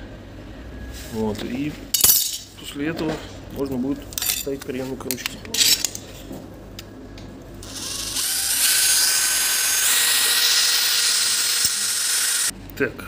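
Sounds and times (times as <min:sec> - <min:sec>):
cordless drill boring through metal: 0:07.6 - 0:12.5.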